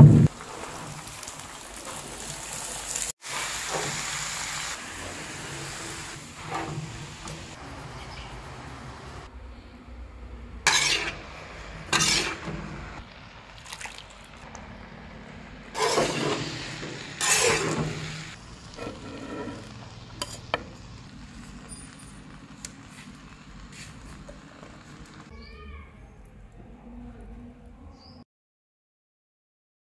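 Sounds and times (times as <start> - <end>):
metal utensil scraping pan: 10.7 - 12.7, 15.8 - 20.6.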